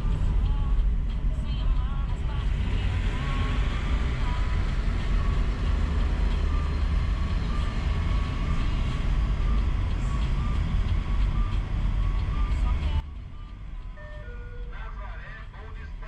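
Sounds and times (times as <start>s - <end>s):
car engine and road rumble: 0.0s - 16.0s
faint tune of stepped tones: 3.4s - 15.0s.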